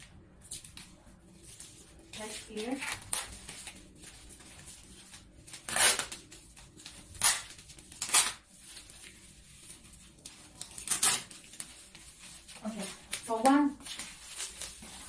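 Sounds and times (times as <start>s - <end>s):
paper rustling: 0.5s - 15.0s.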